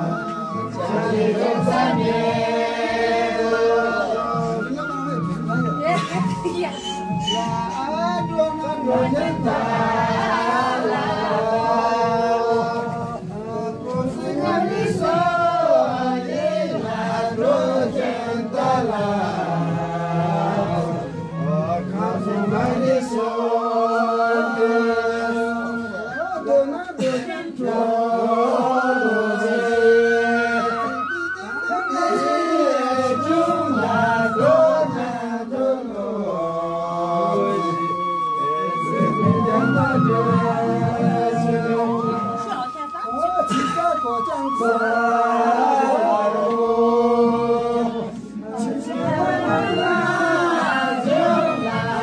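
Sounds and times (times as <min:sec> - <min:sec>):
group singing chant-like song: 0:00.0 - 0:52.0.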